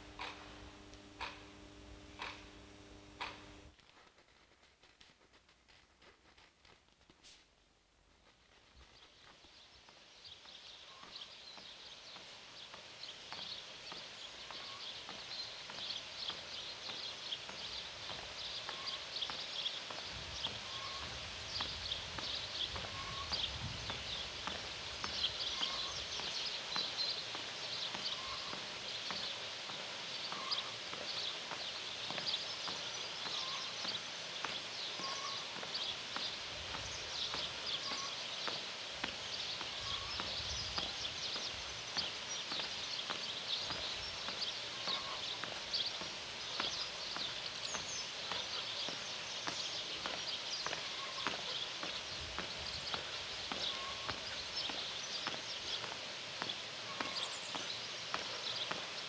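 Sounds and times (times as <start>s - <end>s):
high chirping and clicking: 0.0s - 3.7s.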